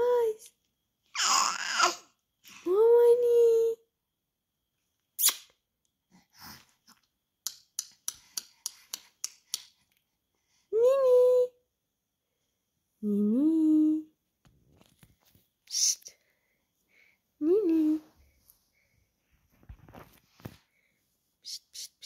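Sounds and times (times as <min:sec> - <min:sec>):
tongue clicks: 0:05.2 - 0:05.6.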